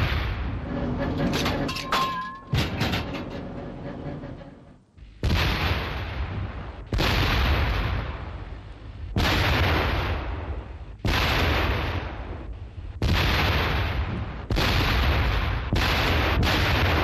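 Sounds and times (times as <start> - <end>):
rumble of gunshot: 0.0 - 0.6, 5.2 - 17.0.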